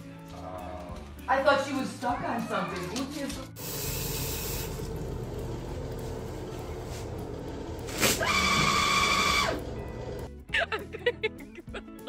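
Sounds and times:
water running from faucet: 3.6s - 9.8s
paper towel dispenser motor whine: 3.6s - 10.3s.

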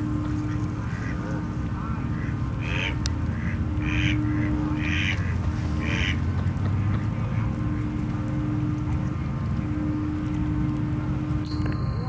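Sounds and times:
steady low rumble: 0.0s - 12.0s
duck quacking: 0.5s - 7.0s.

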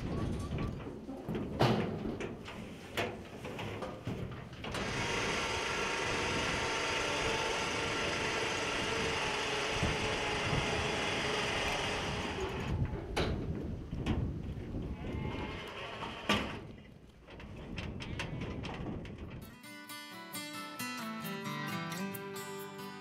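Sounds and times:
metal clanks of steel crate: 0.0s - 4.4s
electric lift motor running: 4.7s - 12.8s.

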